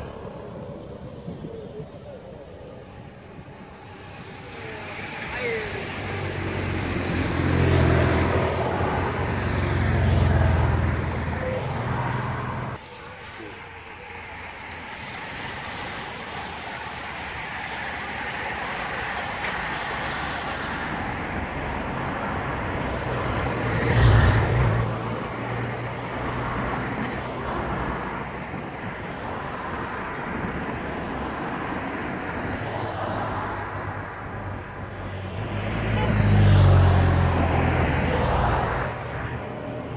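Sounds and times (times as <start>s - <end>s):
motorcycle passing: 0.0s - 18.2s
motor vehicles passing: 0.0s - 39.9s
road noise: 0.0s - 39.9s.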